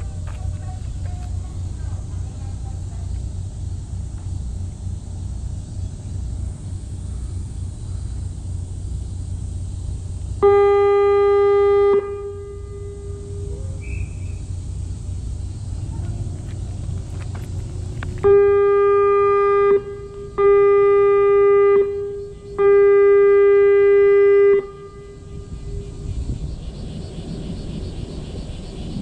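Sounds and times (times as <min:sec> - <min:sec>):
horn blasts: 0:10.4 - 0:14.5, 0:17.7 - 0:26.1.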